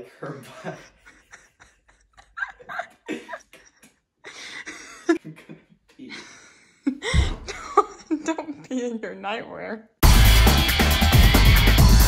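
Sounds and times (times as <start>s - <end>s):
young man laughing hard: 0.5s - 3.8s
heavy low thud: 7.1s - 7.6s.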